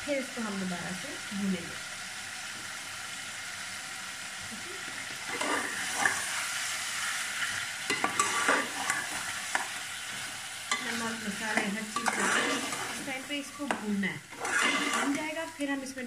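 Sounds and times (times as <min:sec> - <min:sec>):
food sizzling in a pot: 0:00.0 - 0:16.0
spatula stirring and scraping: 0:05.3 - 0:15.5.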